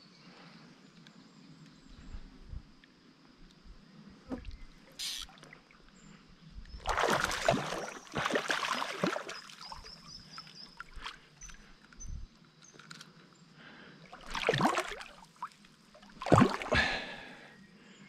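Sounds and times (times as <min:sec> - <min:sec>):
fish splashing at water surface: 0:06.8 - 0:09.7, 0:14.2 - 0:17.3.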